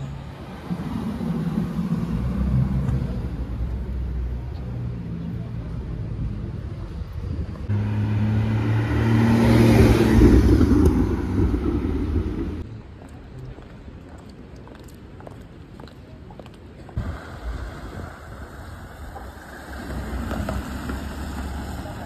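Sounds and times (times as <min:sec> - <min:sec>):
quiet street noise: 0:00.0 - 0:22.0
car engine driving off: 0:07.6 - 0:12.6, 0:17.0 - 0:22.0.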